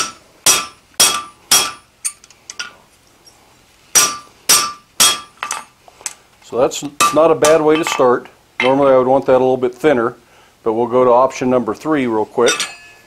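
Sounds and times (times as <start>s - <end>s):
hammer ringing on anvil: 12.4s - 13.0s.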